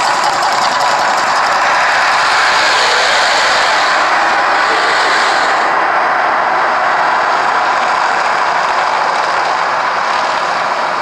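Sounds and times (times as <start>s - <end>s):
cascading water: 0.0s - 5.8s
gas flames roaring: 0.0s - 9.3s.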